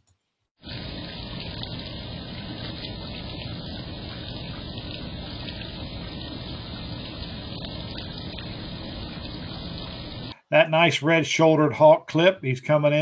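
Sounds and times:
running water rushing: 0:00.6 - 0:10.4.

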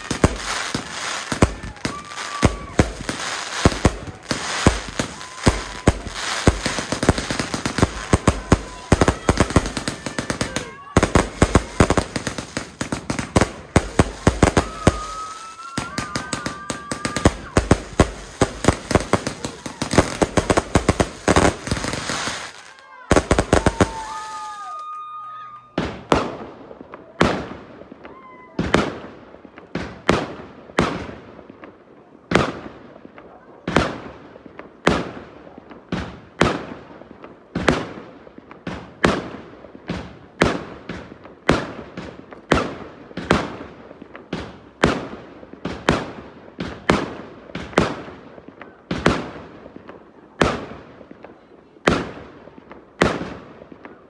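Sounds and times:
firework whistles: 0:00.0 - 0:20.5
fireworks crackling bangs: 0:00.0 - 0:54.0.

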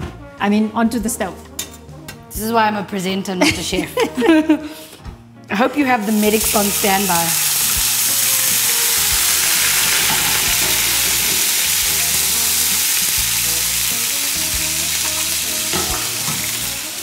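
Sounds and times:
chicken frying in hot oil: 0:06.1 - 0:17.0.

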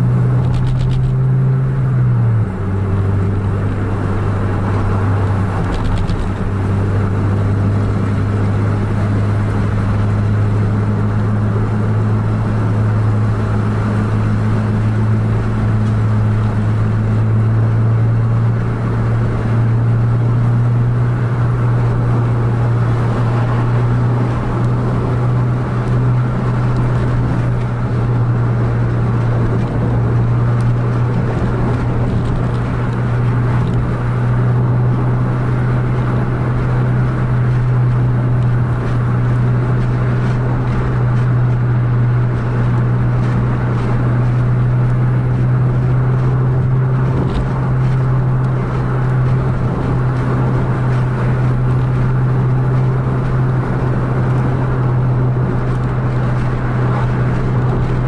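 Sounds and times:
car engine and tyres drone: 0:00.0 - 0:58.0.

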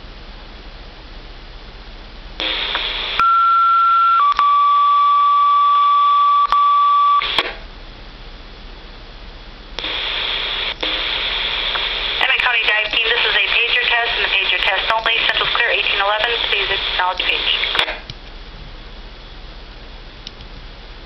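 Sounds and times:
radio hiss: 0:02.4 - 0:03.4, 0:09.8 - 0:18.1
radio squelch burst: 0:02.4 - 0:04.3, 0:09.8 - 0:18.1
two-tone pager tones over radio: 0:02.4 - 0:07.5, 0:09.8 - 0:18.0.

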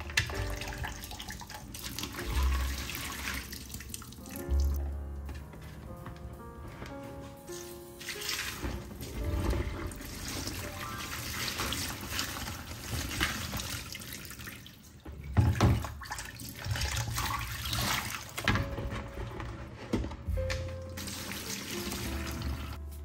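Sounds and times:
tap water running: 0:00.0 - 0:04.8, 0:08.0 - 0:18.7, 0:20.4 - 0:22.8
water splashing into plastic bucket: 0:00.0 - 0:04.8, 0:08.0 - 0:18.6.

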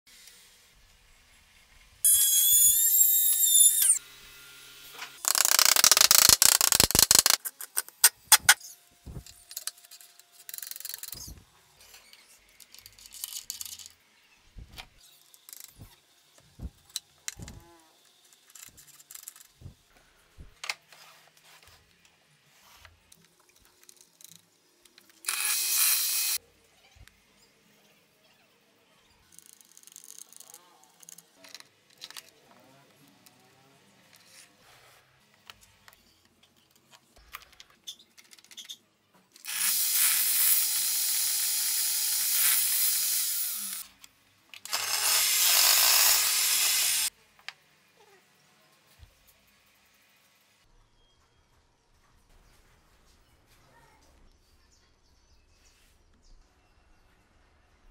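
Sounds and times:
router whining: 0:25.3 - 0:26.4, 0:44.7 - 0:47.1
router cutting plywood: 0:44.7 - 0:47.1.

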